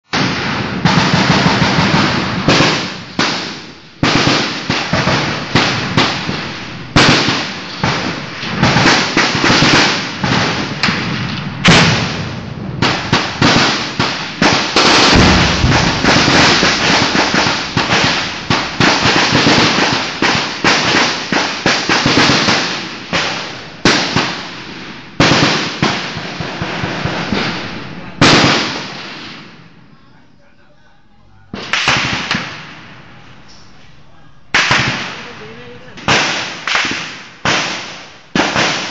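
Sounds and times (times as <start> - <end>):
gunfire with echo: 0.1 - 29.8, 31.5 - 33.2, 34.5 - 38.9.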